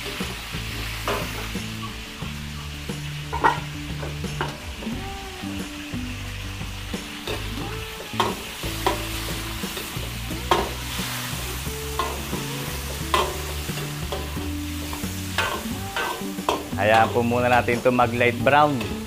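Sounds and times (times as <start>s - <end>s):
meat sizzling in a pan: 0.0s - 19.0s
spatula scraping a pan: 3.2s - 4.7s, 7.2s - 17.8s.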